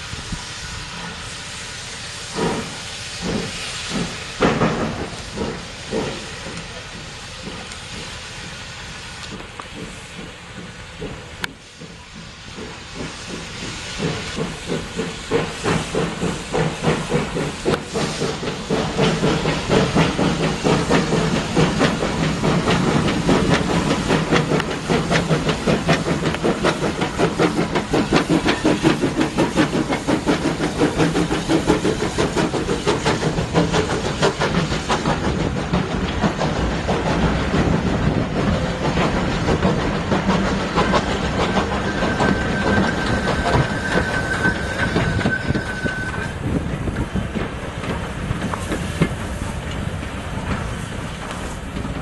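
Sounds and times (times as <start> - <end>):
steam hissing: 0.0 - 52.0
steam locomotive exhaust beats: 0.0 - 52.0.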